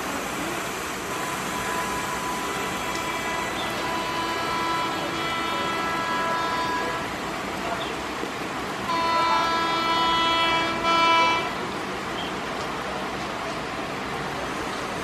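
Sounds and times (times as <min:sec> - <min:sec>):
heavy rain hissing: 0:00.0 - 0:13.1
train running past: 0:00.0 - 0:15.0
locomotive horn chord: 0:01.2 - 0:07.2, 0:08.9 - 0:11.6.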